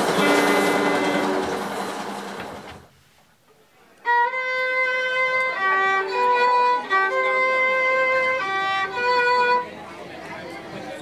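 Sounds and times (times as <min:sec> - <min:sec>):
solo bowed violin: 0:00.0 - 0:01.5, 0:04.0 - 0:10.0.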